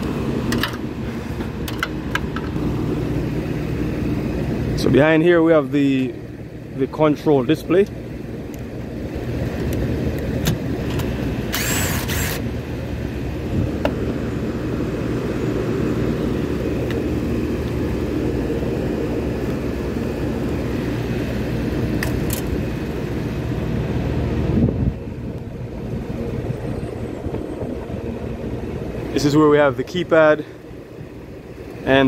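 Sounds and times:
air conditioner rumble: 0.0s - 32.0s
cordless drill whir: 11.0s - 12.5s.

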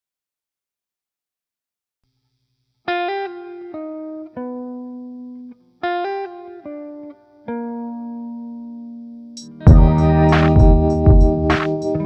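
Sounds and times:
plucked guitar phrase: 6.0s - 12.0s.

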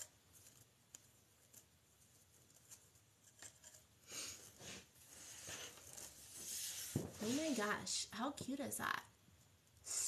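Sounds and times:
mesh and ribbon rustling: 0.0s - 8.0s.

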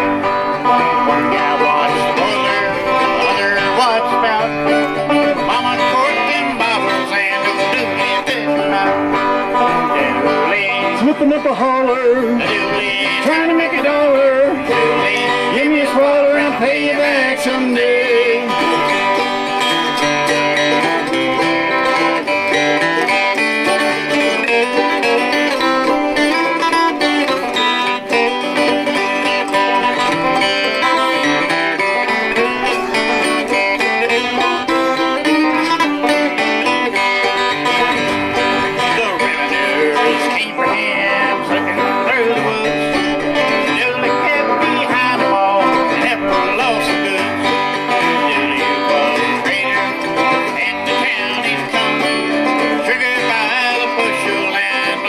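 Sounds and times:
bluegrass band instrumental: 0.0s - 55.0s.

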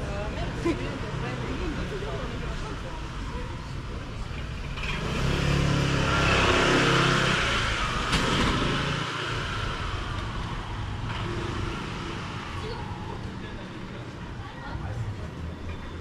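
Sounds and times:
vehicle driving past: 4.6s - 13.9s.

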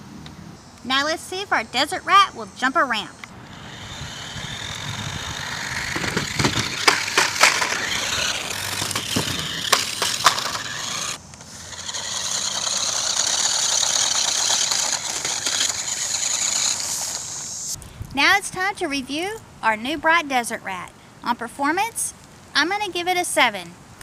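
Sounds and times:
toy car electric motor whirring: 2.2s - 17.8s
tyres crunching on wood chips: 3.5s - 17.4s
toy car clacking and knocking: 3.5s - 17.5s.

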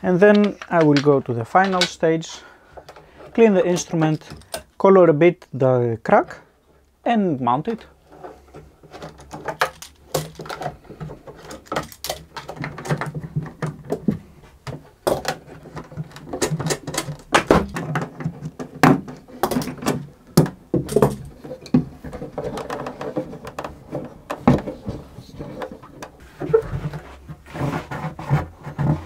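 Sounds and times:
metal clamps clicking and knocking: 0.2s - 2.0s, 3.8s - 4.7s, 8.9s - 10.8s, 11.4s - 14.0s.

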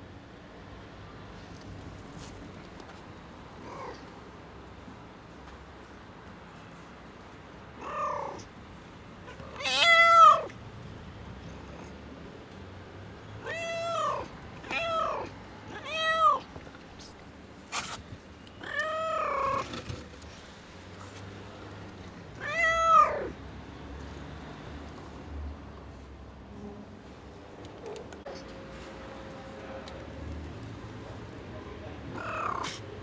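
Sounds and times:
cat meowing: 7.8s - 8.4s, 9.3s - 10.5s, 13.4s - 16.5s, 18.6s - 19.6s, 22.4s - 23.4s, 32.1s - 32.8s.

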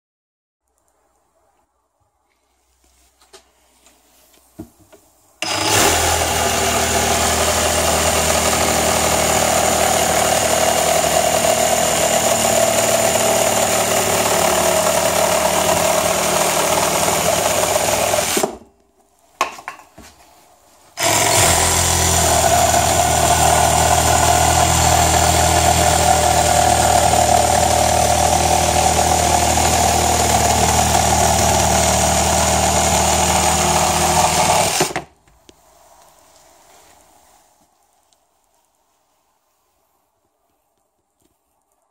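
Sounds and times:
reciprocating saw cutting wood: 5.4s - 18.6s, 20.9s - 35.1s.

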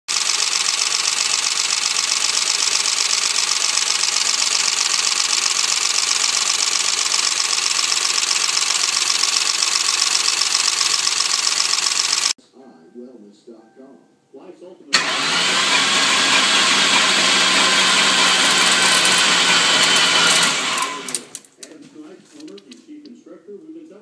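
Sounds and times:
engine idling with valvetrain clatter: 0.1s - 12.3s, 15.0s - 21.0s.

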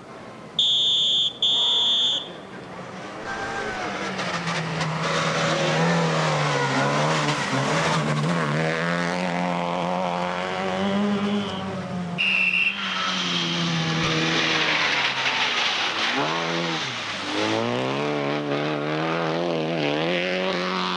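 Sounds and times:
loud high electronic beep: 0.6s - 2.3s, 12.2s - 13.7s
rally car engine revving: 2.7s - 20.9s.

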